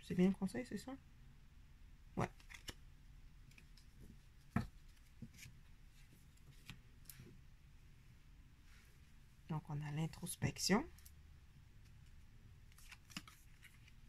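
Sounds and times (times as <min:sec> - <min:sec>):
cards clicking and sliding: 0:02.3 - 0:02.8, 0:12.7 - 0:14.0.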